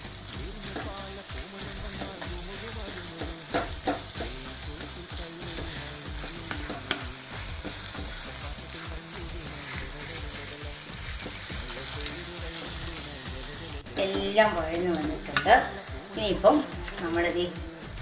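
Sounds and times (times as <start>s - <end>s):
masala sizzling in a pan: 0.0s - 18.0s
spatula knocking against pan: 3.2s - 4.4s.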